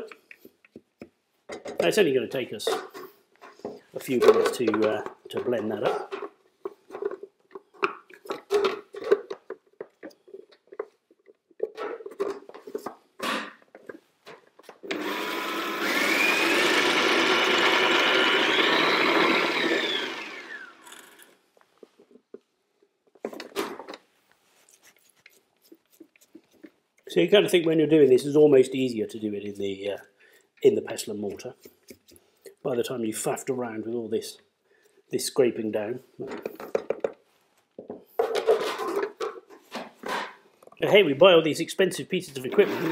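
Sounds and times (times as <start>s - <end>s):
food processor motor whining: 14.8s - 21.3s, 42.5s - 42.9s.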